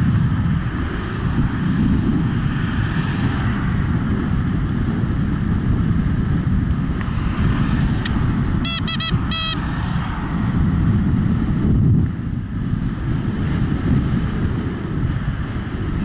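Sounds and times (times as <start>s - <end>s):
electric scooter road noise: 0.0s - 16.0s
wind rumble on microphone: 0.0s - 16.0s
short high chirps: 8.7s - 9.6s.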